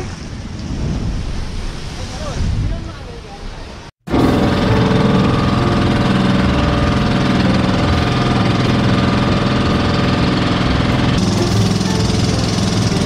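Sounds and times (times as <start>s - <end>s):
boat engine running: 4.1s - 13.0s.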